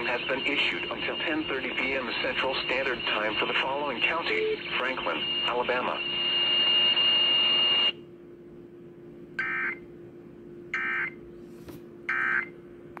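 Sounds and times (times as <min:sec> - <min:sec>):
digital data tones: 0:00.0 - 0:06.0
radio hiss: 0:00.0 - 0:06.2
faint steady hum: 0:00.0 - 0:13.0.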